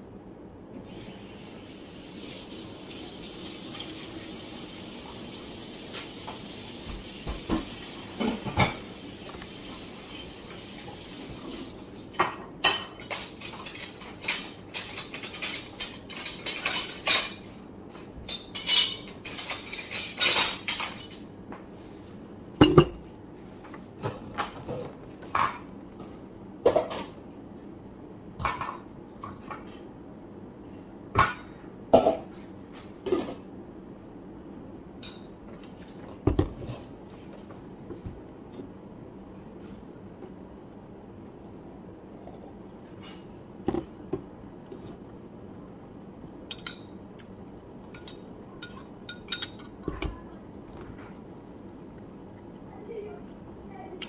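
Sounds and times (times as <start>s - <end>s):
dishes and cutlery clinking: 12.2s - 21.4s, 46.5s - 47.0s, 47.9s - 50.2s.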